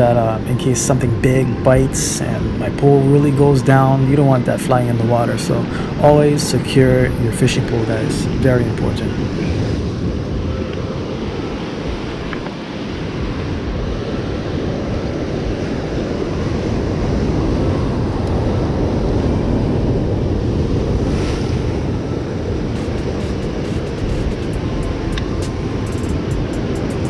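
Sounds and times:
wind buffeting microphone: 0.0 - 27.0
surf breaking over rocks: 16.7 - 27.0.

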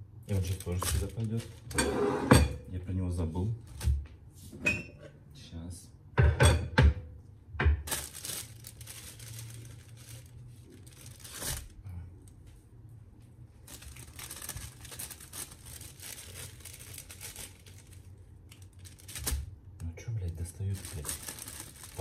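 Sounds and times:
plastic bag crinkling: 0.3 - 1.7, 7.8 - 11.8, 13.6 - 19.6, 20.3 - 22.0.

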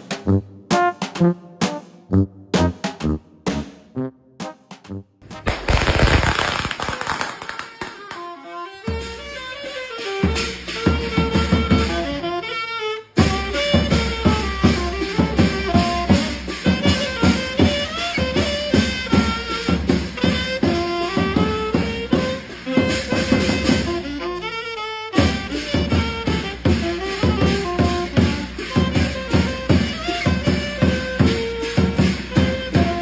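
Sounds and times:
saxophone melody: 0.0 - 5.5, 7.2 - 33.0
bass drum beats: 0.0 - 6.4, 25.2 - 33.0.

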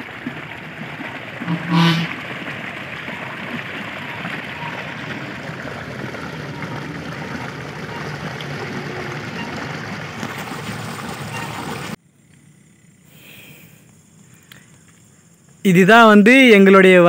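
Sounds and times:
water gushing into pond: 0.0 - 12.0
loud pitched call: 1.4 - 2.2.

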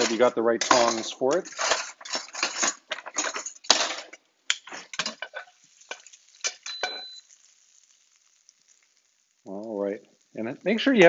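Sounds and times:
metal utensils clattering in drawer: 0.0 - 4.1.

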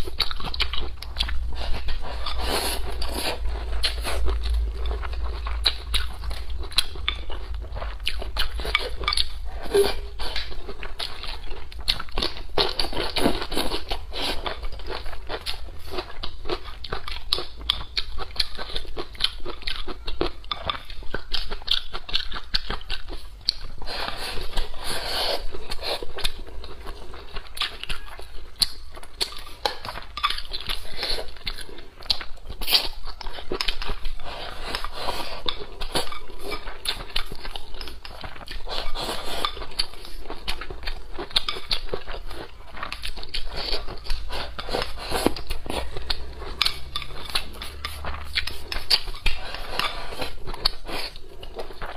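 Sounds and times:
person chewing food: 0.0 - 51.9.

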